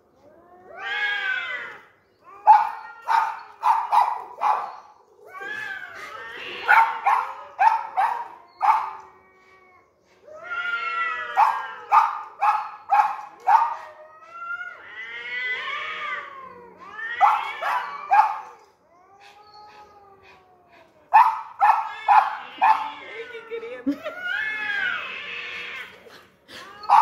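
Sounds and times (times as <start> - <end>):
cats yowling: 0.2 - 27.0
small dog barking: 2.5 - 4.7, 6.7 - 8.9, 11.4 - 13.8, 21.2 - 22.9.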